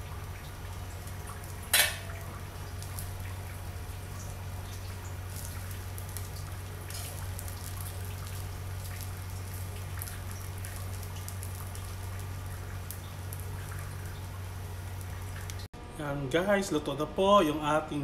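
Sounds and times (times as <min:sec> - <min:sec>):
noodles sizzling in a hot pan: 0:00.0 - 0:15.6.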